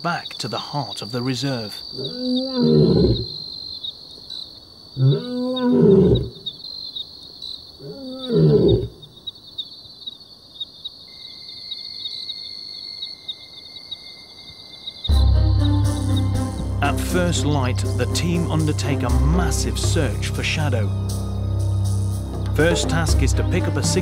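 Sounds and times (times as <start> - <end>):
crickets chirping: 0.0 - 24.0
lion roaring calls: 2.0 - 3.4, 5.0 - 6.5, 7.8 - 9.0.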